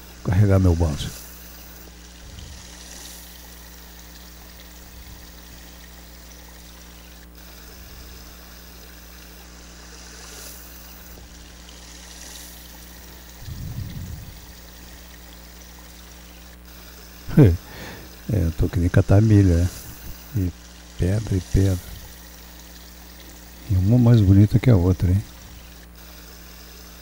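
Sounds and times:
water running in ditch: 0:00.0 - 0:27.0
low rumble: 0:13.4 - 0:14.7.

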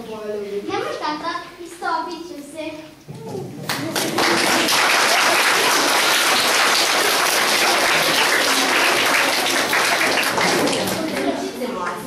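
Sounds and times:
audience applauding: 0:03.6 - 0:11.4.

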